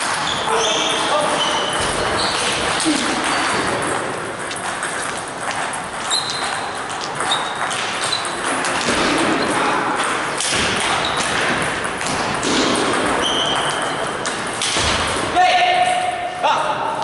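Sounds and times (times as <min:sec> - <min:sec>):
large hall background noise: 0:00.0 - 0:17.0
table tennis ball clicking: 0:01.6 - 0:14.7.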